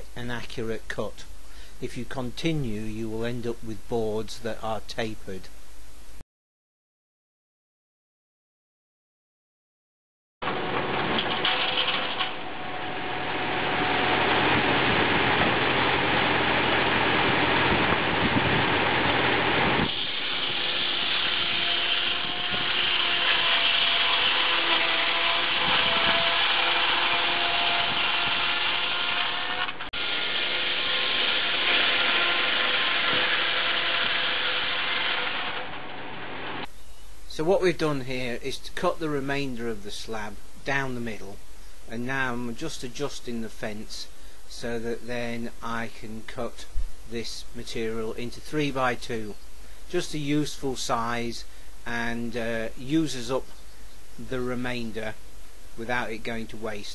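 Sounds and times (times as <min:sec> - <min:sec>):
circular saw ripping wood: 0:10.4 - 0:36.7.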